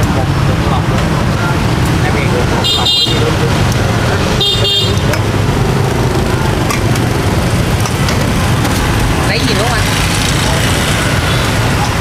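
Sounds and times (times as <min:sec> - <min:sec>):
street traffic: 0:00.0 - 0:12.0
vehicle horn toot: 0:02.6 - 0:03.3, 0:04.4 - 0:05.1.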